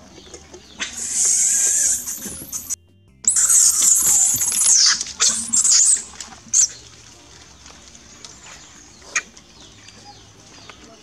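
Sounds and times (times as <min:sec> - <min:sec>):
monkey screaming: 0:00.7 - 0:06.9.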